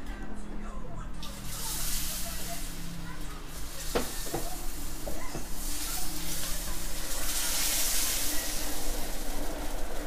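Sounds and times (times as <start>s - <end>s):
batter hissing in hot pan: 1.2s - 10.0s
spoon tapping on pan: 3.9s - 5.5s.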